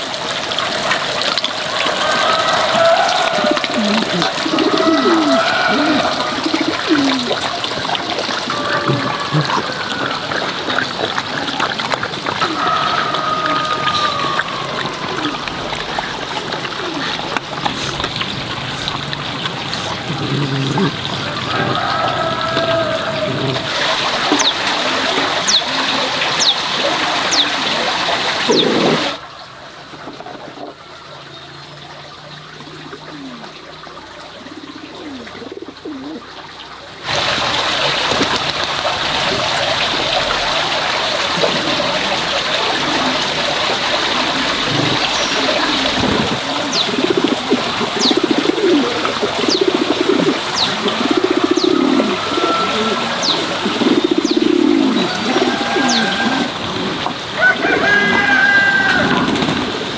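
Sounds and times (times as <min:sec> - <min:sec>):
water trickling: 0:00.0 - 0:59.9
birds calling: 0:01.6 - 0:27.6, 0:28.3 - 0:29.2, 0:44.5 - 0:57.2.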